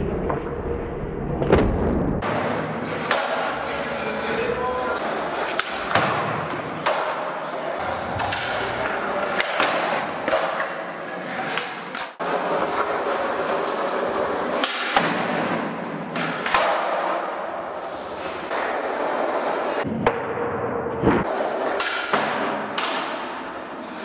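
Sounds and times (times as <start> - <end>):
skateboard clacks and thumps: 2.2 - 3.7, 5.0 - 10.8, 11.5 - 17.3, 21.0 - 23.4
skateboard wheels rolling on concrete: 2.2 - 19.9, 21.0 - 24.0.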